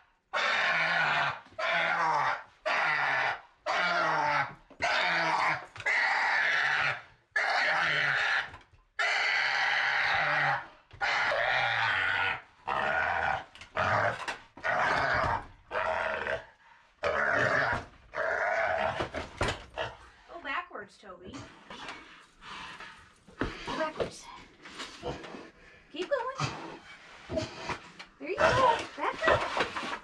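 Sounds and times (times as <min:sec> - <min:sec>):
pig screeching: 0:00.3 - 0:20.0.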